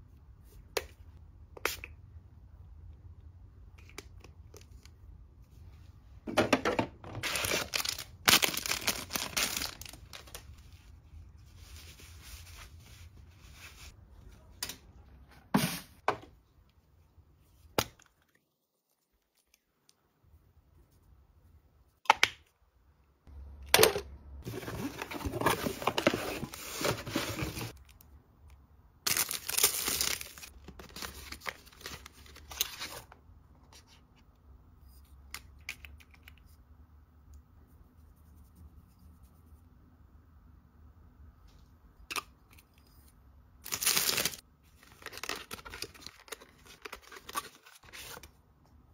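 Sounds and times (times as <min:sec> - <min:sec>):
packaging crinkling and tearing: 0:07.2 - 0:10.6, 0:29.1 - 0:33.0, 0:43.6 - 0:48.2.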